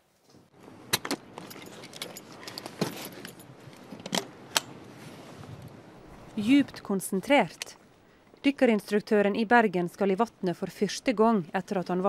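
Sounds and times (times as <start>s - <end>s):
metal clicks and clinks: 1.0s - 4.2s.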